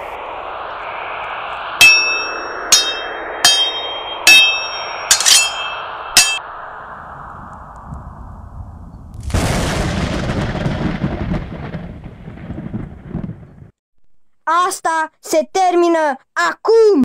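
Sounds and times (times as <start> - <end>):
metal swords clanging: 1.8 - 6.4.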